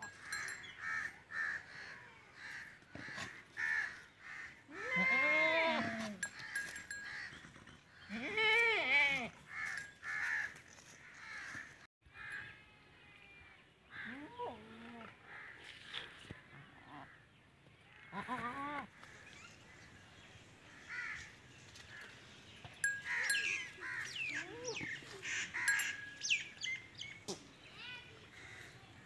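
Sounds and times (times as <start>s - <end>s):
crows cawing: 0.3s - 4.9s, 9.5s - 12.5s, 20.7s - 21.3s, 23.0s - 24.2s, 25.2s - 26.1s
goats bleating: 4.7s - 6.3s, 8.1s - 9.3s.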